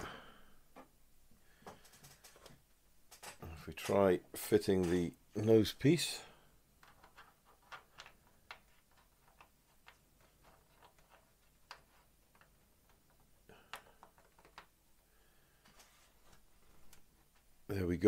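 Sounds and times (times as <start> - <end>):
plastic parts clicking together: 6.8 - 14.8.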